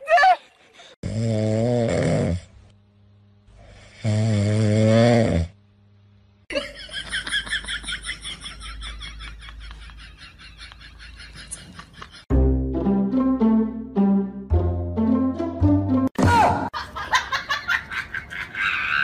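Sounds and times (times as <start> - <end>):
dog snoring loudly: 1.0 - 2.6, 3.8 - 5.6.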